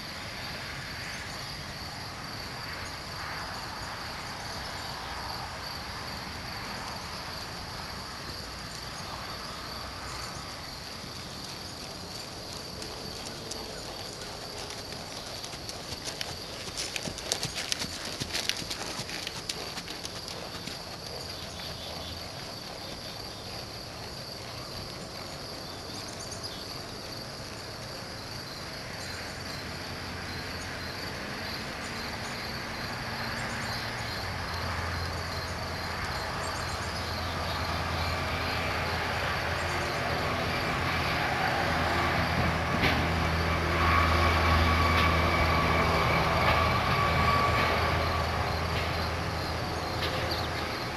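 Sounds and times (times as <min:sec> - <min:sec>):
horse hoofbeats trotting: 0:06.9 - 0:27.2, 0:34.9 - 0:50.9
distant heavy vehicle rumble: 0:32.6 - 0:50.9.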